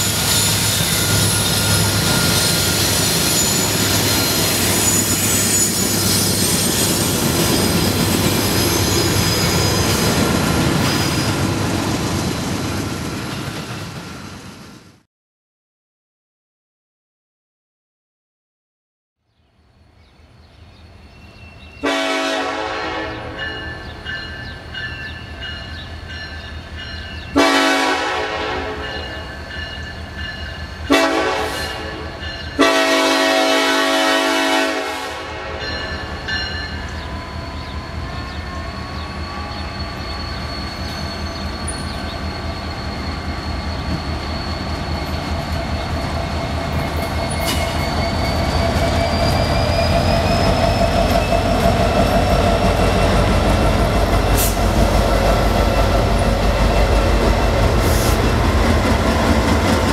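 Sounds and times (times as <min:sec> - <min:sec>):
diesel locomotive train rumble: 0:00.0 - 0:15.0, 0:19.9 - 0:59.9
locomotive air horn blasts: 0:21.8 - 0:23.5, 0:27.4 - 0:29.2, 0:30.9 - 0:35.8.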